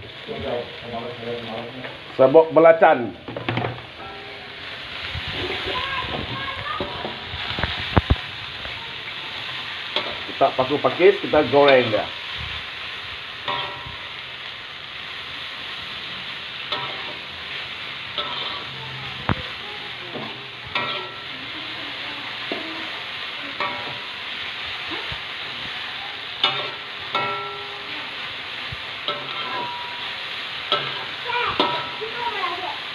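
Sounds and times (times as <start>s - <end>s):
vegetables sizzling in a wok: 0.0s - 32.9s
metal spatula scraping a pan: 13.4s - 14.2s, 16.6s - 19.3s, 20.1s - 22.9s, 26.4s - 28.2s, 29.0s - 32.2s.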